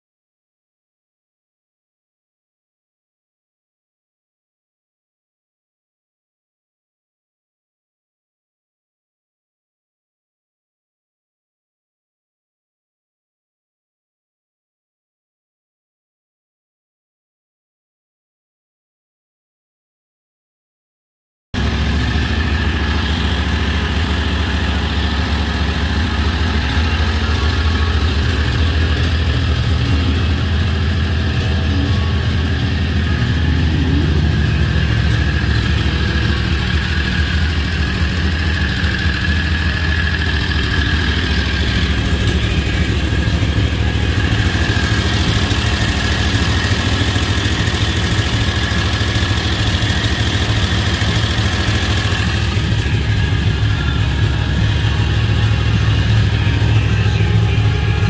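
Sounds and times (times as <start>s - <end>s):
gas engine idling: 21.6s - 58.0s.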